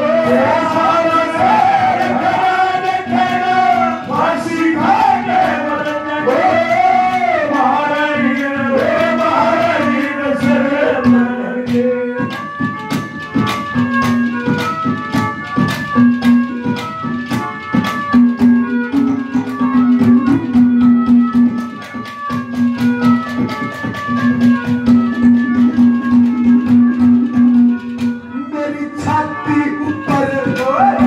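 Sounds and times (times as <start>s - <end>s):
man singing: 0.0s - 12.4s, 28.4s - 31.0s
drum strokes: 0.0s - 28.4s
harmonium: 0.0s - 31.0s
jingling percussion: 0.0s - 31.0s.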